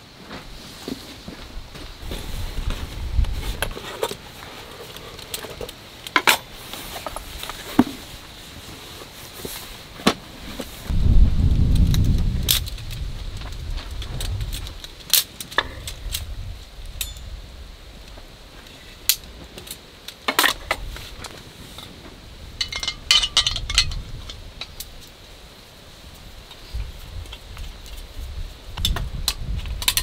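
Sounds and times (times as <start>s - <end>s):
metal clicks of folding stove: 17.0s - 17.3s.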